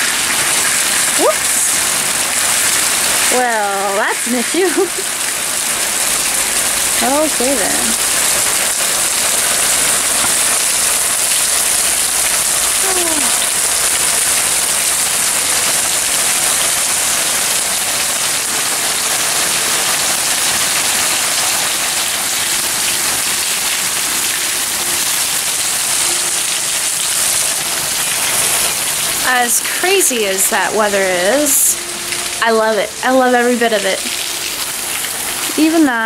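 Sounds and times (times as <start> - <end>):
heavy rain on concrete: 0.0 - 36.0.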